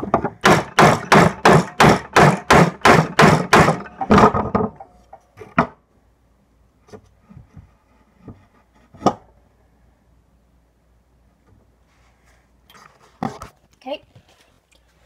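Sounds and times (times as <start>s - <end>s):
hammer striking wood: 0.0s - 4.8s.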